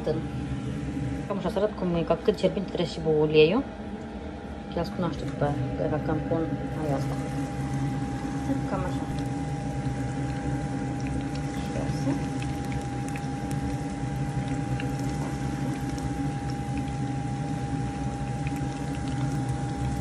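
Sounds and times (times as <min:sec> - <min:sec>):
steady hum: 0:00.0 - 0:20.0
food deep-frying in hot oil: 0:06.6 - 0:20.0.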